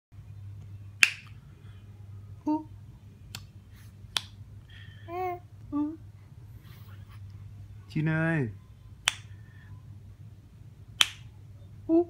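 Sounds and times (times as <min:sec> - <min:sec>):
steady low hum: 0:00.2 - 0:12.0
finger snaps: 0:01.0 - 0:01.4, 0:03.3 - 0:04.4, 0:09.0 - 0:09.4, 0:11.0 - 0:11.3.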